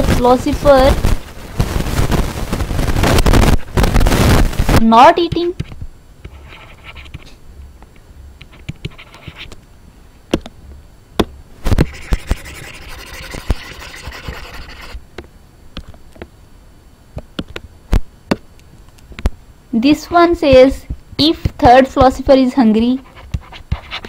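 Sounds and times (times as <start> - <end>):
pen scratching: 5.3 - 7.3, 8.4 - 9.5, 11.7 - 15.0, 23.0 - 24.0.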